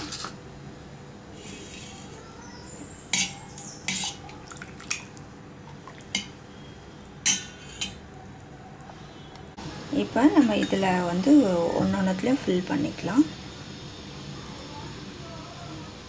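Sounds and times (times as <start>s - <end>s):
utensil clinking against dishes: 3.1s - 5.1s, 5.9s - 6.4s, 7.2s - 8.0s, 10.4s - 10.8s.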